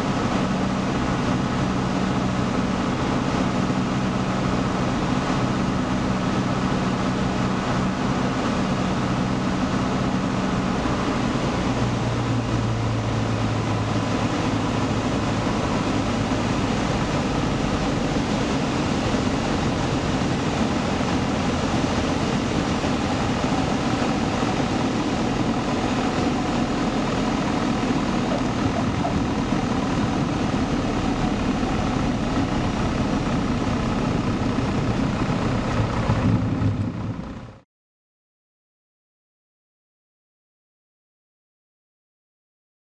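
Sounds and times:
light aircraft engine drone: 0.0 - 37.6.

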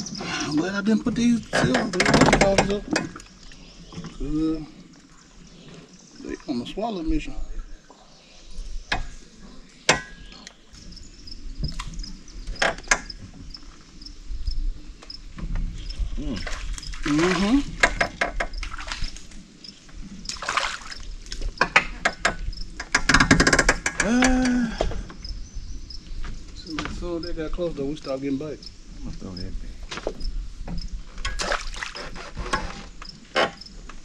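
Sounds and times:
knocks and clatter in a boat: 0.0 - 3.3, 12.5 - 13.5, 17.4 - 19.0, 21.3 - 25.1
faint water: 0.0 - 23.0, 26.7 - 33.6
insects chirping: 0.0 - 34.0.

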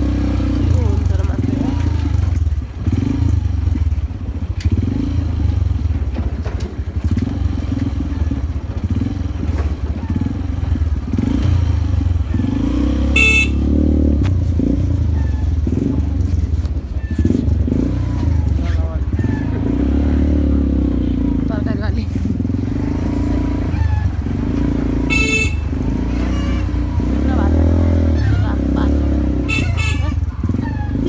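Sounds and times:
motorcycle engine running: 0.0 - 31.0
motorcycle horn beep: 13.0 - 13.9, 25.0 - 26.9, 29.3 - 31.0.

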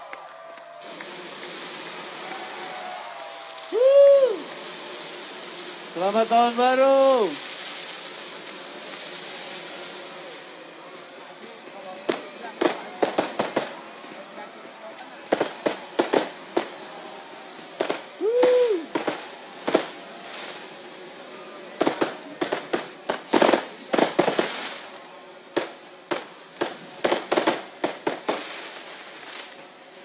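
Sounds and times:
firework whistle: 0.0 - 10.5, 11.9 - 24.9
fireworks bursting: 0.0 - 30.0.

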